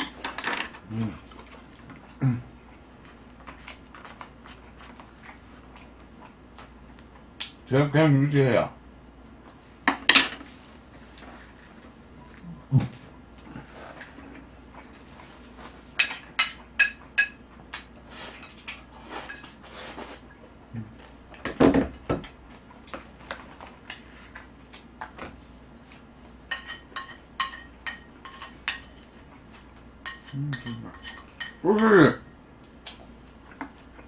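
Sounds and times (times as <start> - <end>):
cutlery clinking on ceramic plates: 26.5 - 29.1.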